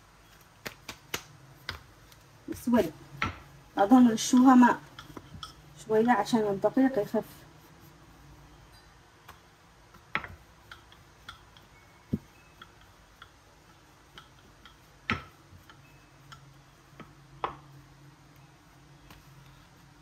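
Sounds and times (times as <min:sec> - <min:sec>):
knocks of rolling bread dough: 0:00.5 - 0:06.4, 0:09.2 - 0:17.9, 0:19.0 - 0:19.4.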